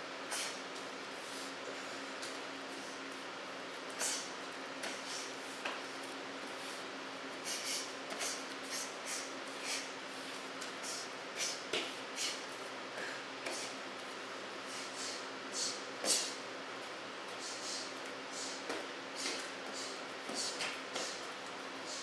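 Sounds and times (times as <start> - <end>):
steady hum and hiss: 0.0 - 22.0.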